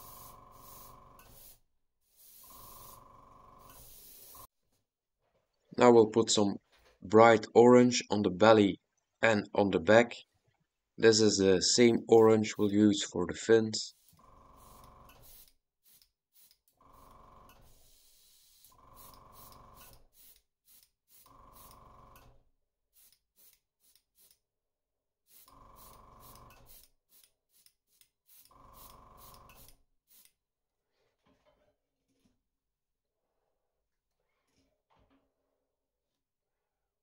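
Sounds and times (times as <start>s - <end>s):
airbrush spraying hiss: 0.0s - 3.0s, 3.6s - 4.5s, 13.9s - 16.6s, 17.7s - 21.7s, 23.0s - 24.4s, 25.3s - 30.3s.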